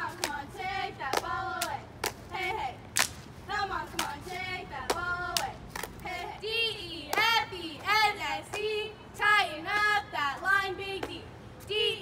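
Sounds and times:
rhythmic hand claps: 0.0s - 3.2s, 3.9s - 6.2s.

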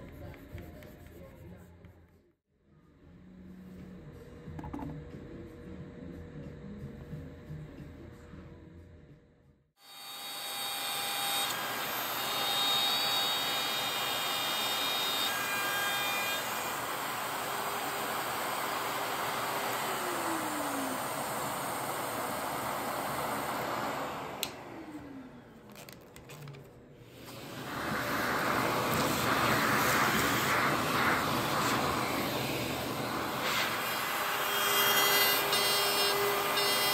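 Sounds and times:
trim router cutting wood: 9.8s - 25.9s, 27.2s - 36.9s
dust extraction vacuum: 9.8s - 36.9s.

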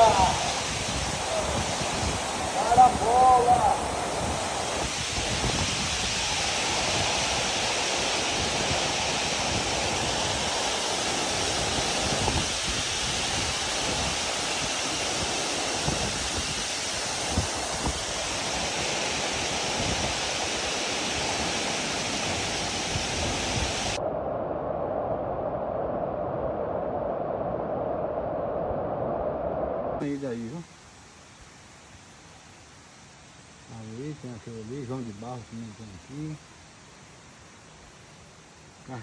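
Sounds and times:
waterfall rushing into pool: 0.0s - 24.0s.

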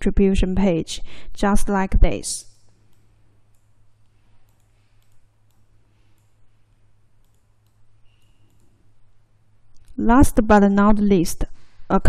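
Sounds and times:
low electrical hum: 0.0s - 12.0s
faint computer mouse clicks: 2.5s - 8.9s.

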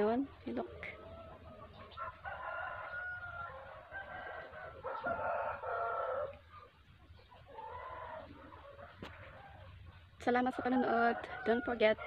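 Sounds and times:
rooster crowing: 1.0s - 6.4s, 7.5s - 9.7s, 10.6s - 12.0s.

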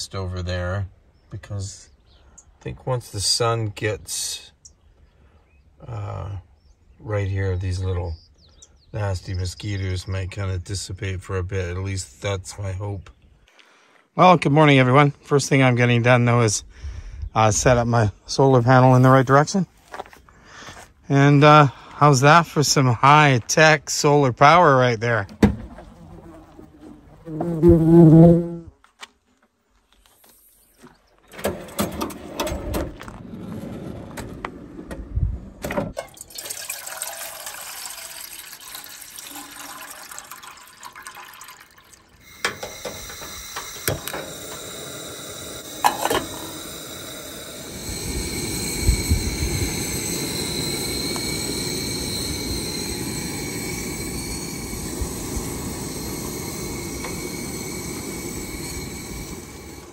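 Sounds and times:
water pouring into metal pot: 36.0s - 59.9s
stove burner hissing: 42.2s - 59.9s.

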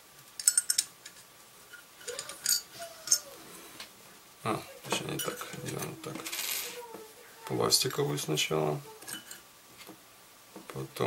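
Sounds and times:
metal washers clinking: 0.4s - 3.3s, 5.0s - 6.6s
handling noise: 4.8s - 7.1s.

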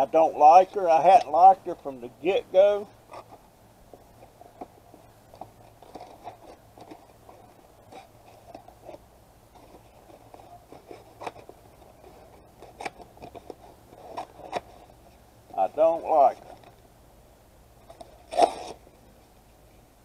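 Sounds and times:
crackling and rustling handling: 0.0s - 16.9s, 17.8s - 19.5s.

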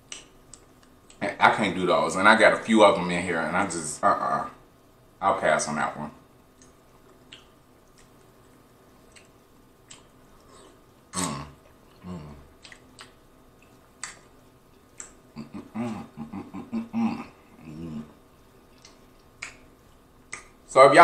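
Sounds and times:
wet mouth clicks and smacks: 0.1s - 1.2s, 6.6s - 8.4s, 9.0s - 10.8s, 12.6s - 15.2s, 18.7s - 20.6s
closed-mouth hums: 9.1s - 20.6s
throaty burp: 11.1s - 12.4s, 15.4s - 18.1s.

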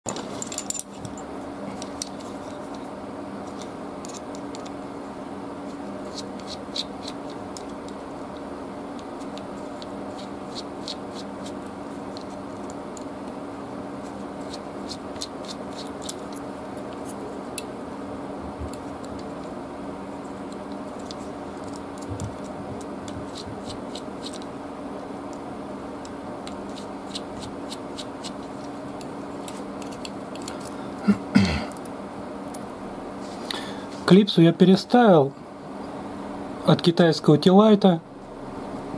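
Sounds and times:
steady low hum: 0.1s - 38.9s
screwdriver clicking and scraping: 14.4s - 17.2s, 26.5s - 30.7s.

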